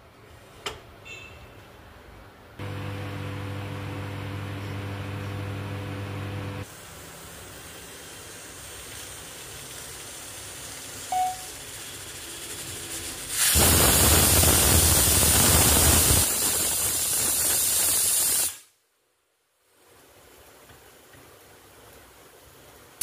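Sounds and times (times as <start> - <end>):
pressure cooker steam hissing: 2.6 - 18.7
faint steady hiss: 6.6 - 23.0.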